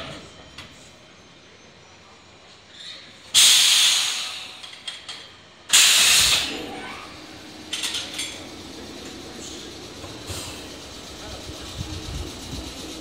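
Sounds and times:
compressed air hissing: 3.4 - 4.6, 5.7 - 6.6, 9.4 - 13.0.

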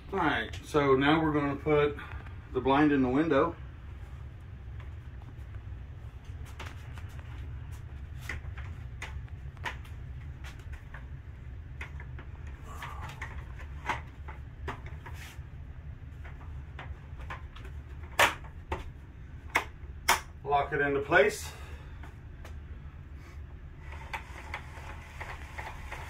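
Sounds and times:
steady low hum: 0.0 - 26.0
window blind clicking and knocking: 23.8 - 26.0.

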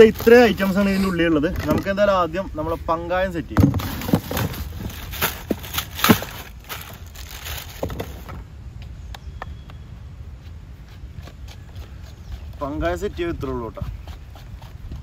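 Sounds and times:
plastic wrapping crinkling: 0.0 - 0.9, 3.8 - 8.4.

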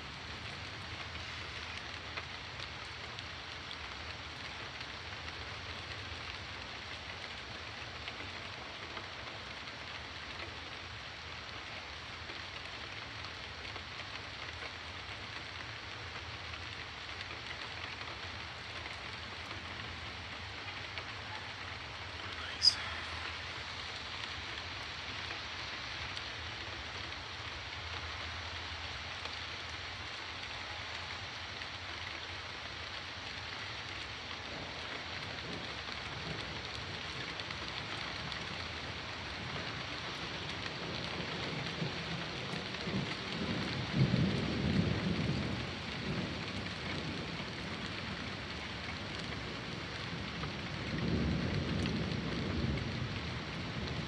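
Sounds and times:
rain hissing: 17.0 - 29.2.

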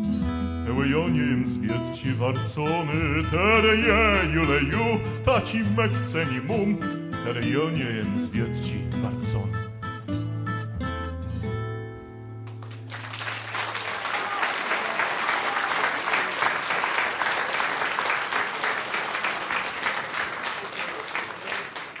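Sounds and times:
audience applauding: 12.5 - 22.0.

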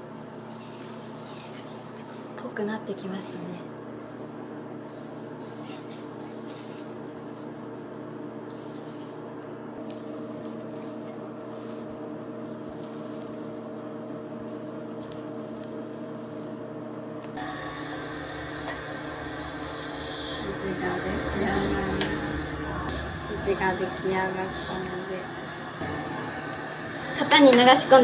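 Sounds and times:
steady hum of held tones: 17.4 - 28.0.

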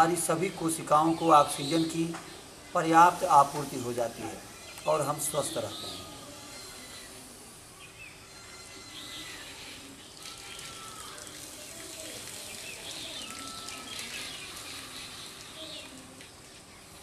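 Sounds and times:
faint steady hiss: 0.0 - 17.0
birds chirping and whistling: 1.0 - 2.1, 4.5 - 7.1.

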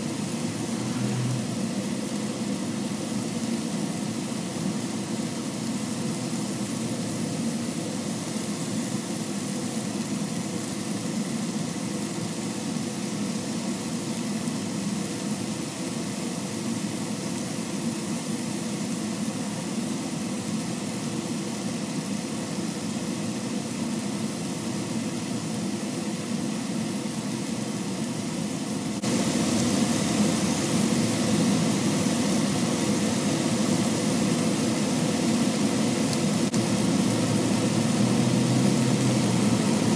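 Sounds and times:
steady hum: 0.0 - 3.0
meat sizzling on griddle: 0.0 - 39.9.

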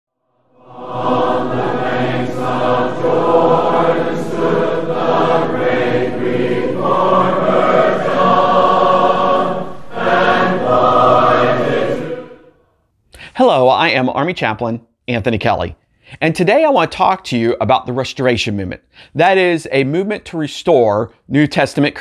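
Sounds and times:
choir singing held chords: 0.3 - 12.8.

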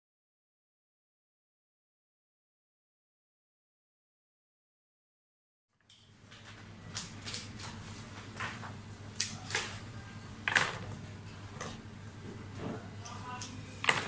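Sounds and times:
steady low hum: 5.9 - 14.0.

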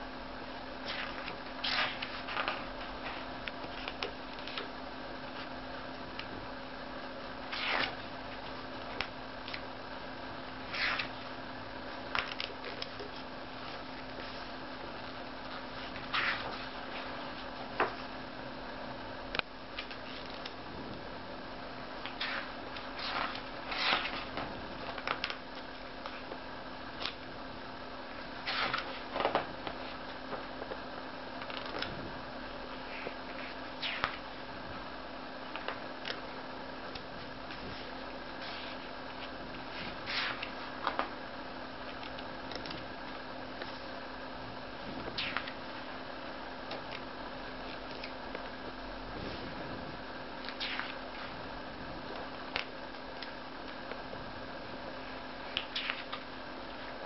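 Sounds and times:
steady low hum: 0.0 - 57.0
book pages turning: 0.8 - 4.7, 7.5 - 9.7, 10.7 - 11.2, 12.1 - 14.5, 15.5 - 18.1, 22.0 - 26.2, 28.4 - 30.8, 31.4 - 31.9, 37.5 - 41.1, 45.2 - 45.6, 50.4 - 51.3, 55.5 - 56.2.

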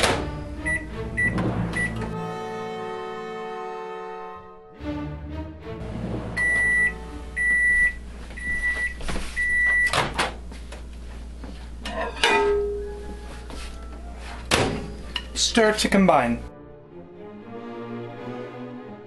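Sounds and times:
microwave oven beeping: 0.0 - 2.2, 6.3 - 10.3.

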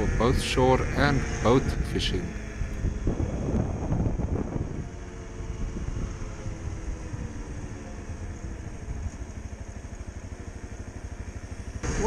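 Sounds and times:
motorcycle engine running: 0.0 - 12.0.

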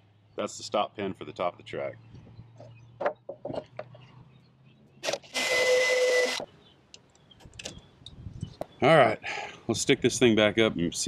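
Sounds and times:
handling knocks and clicks: 2.6 - 4.1
power drill drilling plastic: 5.0 - 6.5.

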